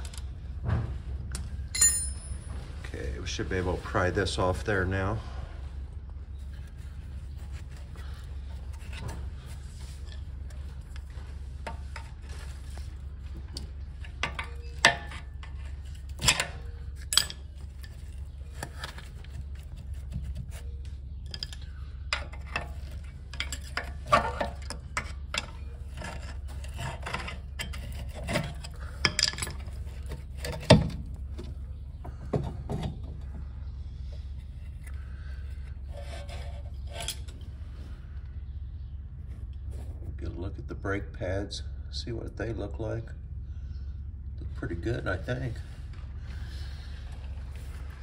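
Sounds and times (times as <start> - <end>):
steady low hum: 0.0 - 48.0
metal parts scraping and clanking: 6.4 - 31.6, 34.1 - 37.8.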